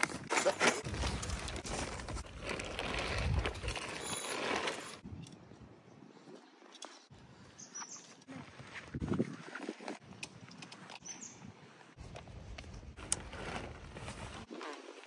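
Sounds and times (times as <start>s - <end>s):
tent fabric rustling: 13.0s - 15.0s.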